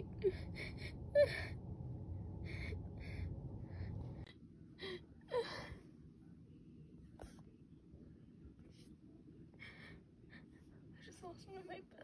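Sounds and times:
low rumble: 0.0s - 4.6s.

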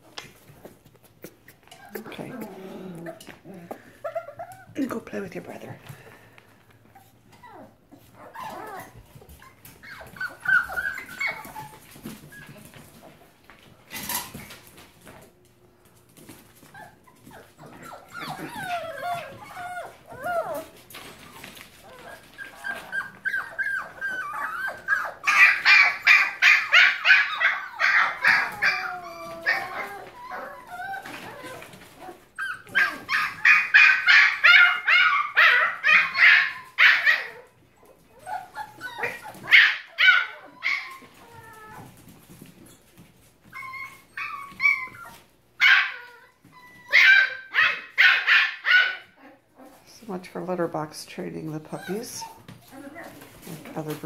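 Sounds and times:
puppies whining: 0.0s - 4.9s, 6.0s - 15.4s, 16.2s - 50.0s, 51.4s - 54.0s
puppies yapping: 3.0s - 4.8s, 6.9s - 13.2s, 16.6s - 42.3s, 43.4s - 49.9s.

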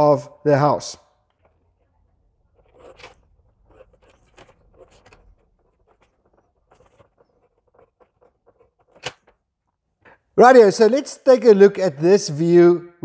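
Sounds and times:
pencil scratching on paper: 2.5s - 9.0s.

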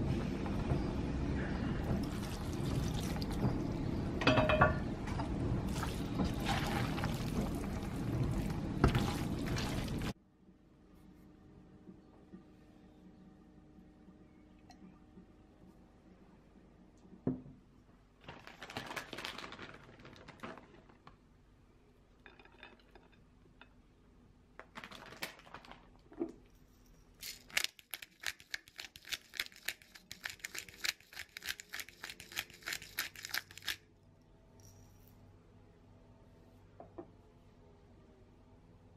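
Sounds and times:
pepper mill grinding: 27.1s - 33.9s.

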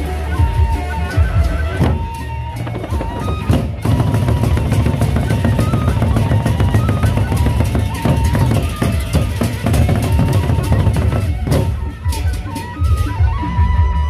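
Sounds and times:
barrel drums beaten fast: 1.2s - 13.4s.

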